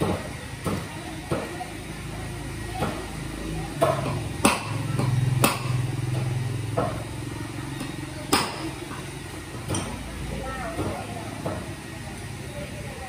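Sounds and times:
hammer striking metal punch: 3.8 - 5.8.

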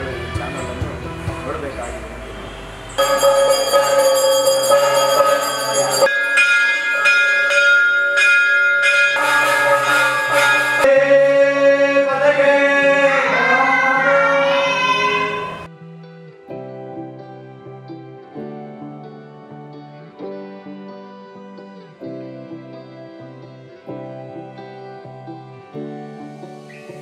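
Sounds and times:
metal gong ringing: 3.0 - 11.0
temple bells ringing: 3.0 - 11.6.

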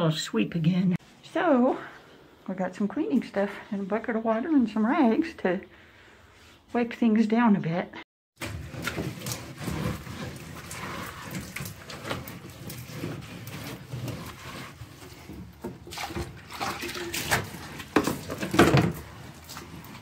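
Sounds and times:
wet rag wiping wooden wall: 8.4 - 20.0.

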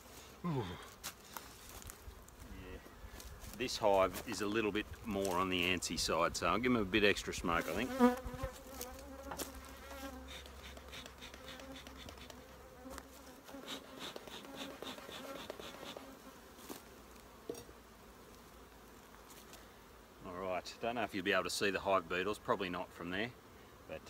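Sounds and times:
honeybees buzzing: 0.0 - 24.0
bellows smoker puffs: 10.0 - 12.5, 13.5 - 16.1.

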